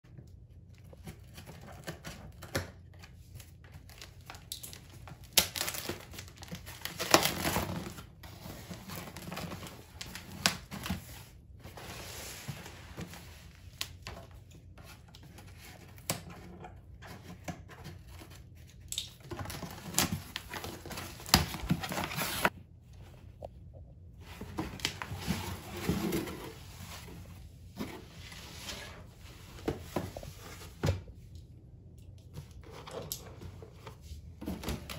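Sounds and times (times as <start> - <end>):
cardboard flaps crinkling and scraping: 19.2 - 22.6, 24.2 - 31.0.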